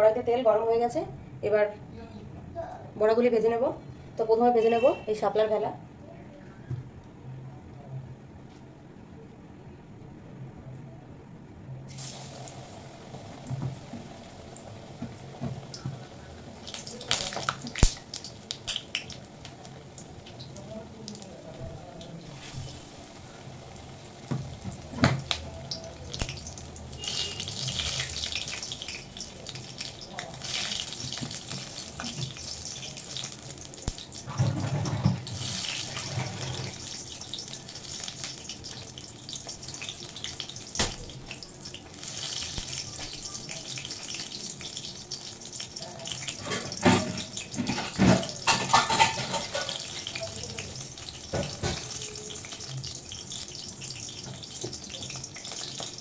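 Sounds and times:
frying in hot oil: 11.9 - 56.0.

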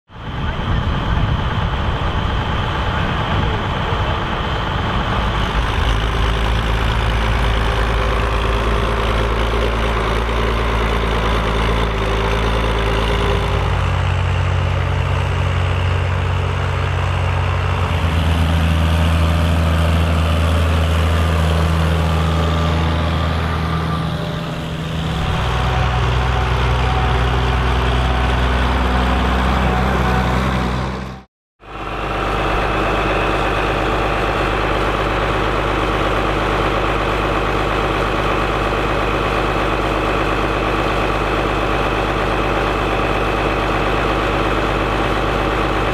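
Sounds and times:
tractor diesel engine running: 0.1 - 45.9.

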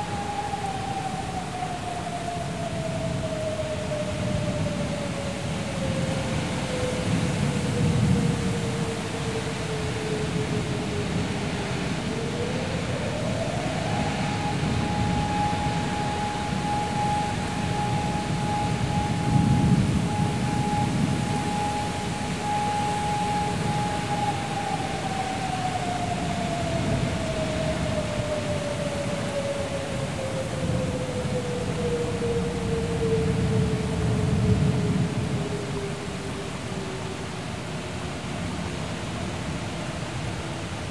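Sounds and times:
gusting storm wind: 0.0 - 40.9
heavy rain: 0.0 - 40.9.

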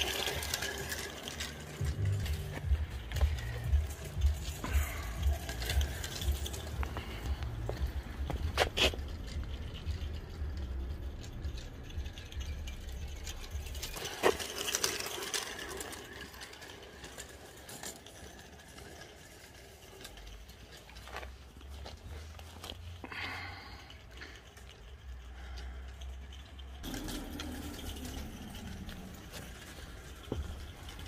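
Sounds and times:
model steam locomotive rattling: 0.0 - 22.5, 23.8 - 31.0.

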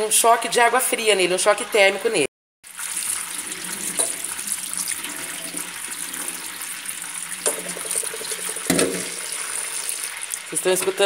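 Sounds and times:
tap water running into colander: 2.6 - 11.0.

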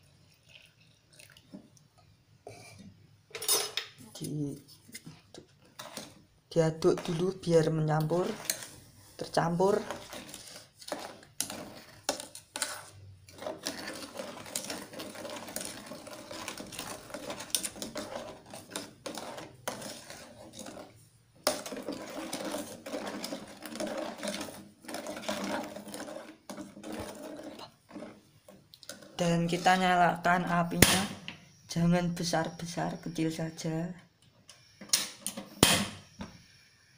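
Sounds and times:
spoon scraping a saucepan: 3.4 - 31.0.

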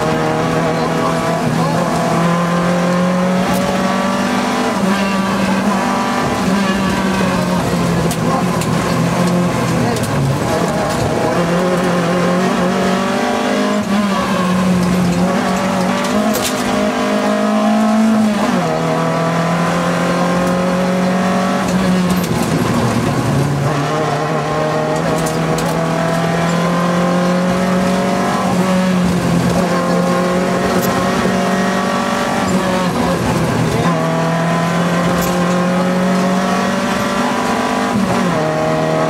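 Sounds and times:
car engine under full throttle: 0.0 - 39.0.

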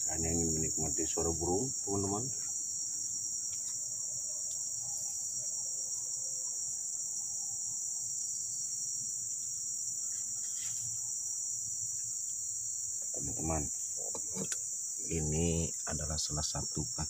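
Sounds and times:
insect chorus drone: 0.0 - 17.0.

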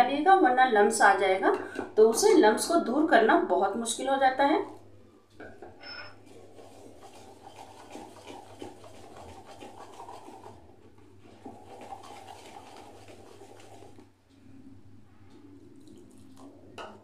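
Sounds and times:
whisk beating batter in bowl: 6.2 - 14.1.

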